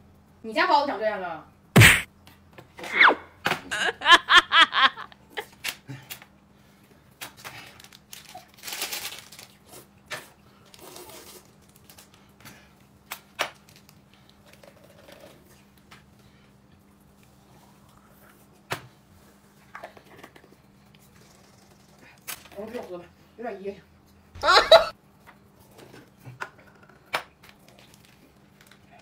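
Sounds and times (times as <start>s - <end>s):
rustling crinkling: 7.8s - 9.6s.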